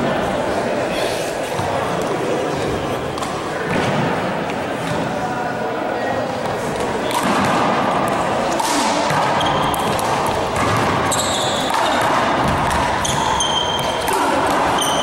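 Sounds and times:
sneakers squeaking: 0:08.5 - 0:15.0
ball bouncing on wooden floor: 0:09.1 - 0:13.7.

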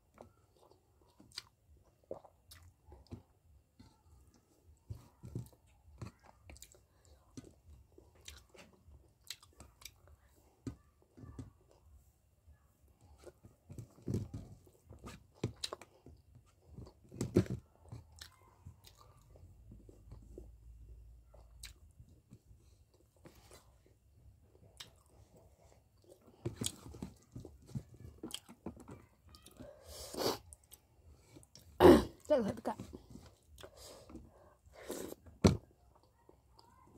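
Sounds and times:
wet chewing and lip smacks: 0:00.5 - 0:03.3, 0:06.1 - 0:07.5, 0:08.1 - 0:10.2, 0:17.8 - 0:19.4, 0:21.3 - 0:22.0, 0:24.6 - 0:27.4
food crunching: 0:08.2 - 0:10.0.

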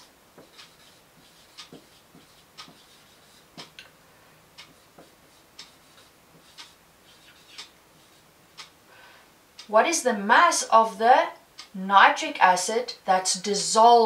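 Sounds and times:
marker scratching on whiteboard: 0:00.0 - 0:03.8, 0:04.6 - 0:08.3
faint regular ticks: 0:00.4 - 0:03.9, 0:04.6 - 0:08.8.

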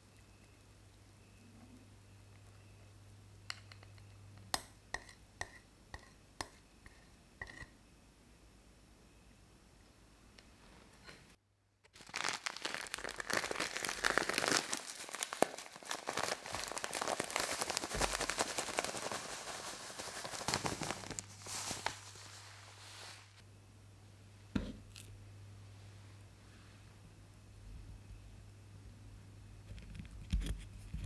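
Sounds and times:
plastic packet crinkling: 0:11.9 - 0:23.3
crumbs pouring into a dish: 0:12.0 - 0:23.3.

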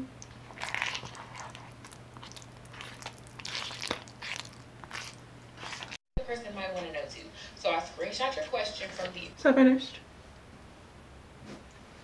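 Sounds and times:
spoon stirring thick wet paste: 0:00.2 - 0:06.0.

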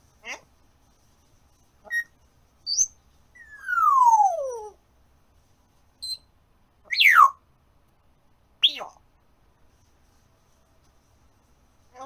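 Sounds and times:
parrot chirps: 0:01.8 - 0:04.8, 0:06.0 - 0:07.4, 0:08.6 - 0:09.0
parrot whistling: 0:01.9 - 0:02.1, 0:02.7 - 0:04.8, 0:06.9 - 0:07.4.

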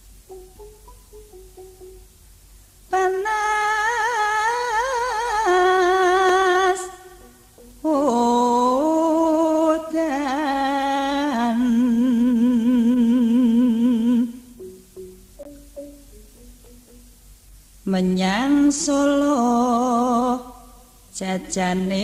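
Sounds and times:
person singing melismatic phrases: 0:02.9 - 0:14.6, 0:17.9 - 0:22.0.

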